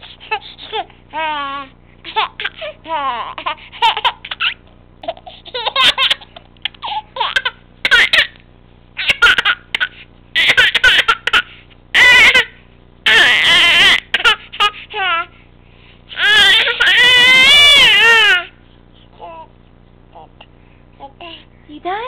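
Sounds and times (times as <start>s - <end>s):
baby laughing: 2.1s - 8.4s, 9.0s - 12.5s, 13.1s - 15.3s.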